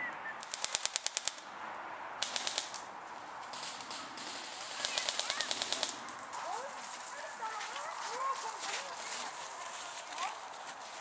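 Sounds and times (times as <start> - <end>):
airsoft gun bursts: 0.4 - 1.4, 2.2 - 2.9, 3.5 - 6.1.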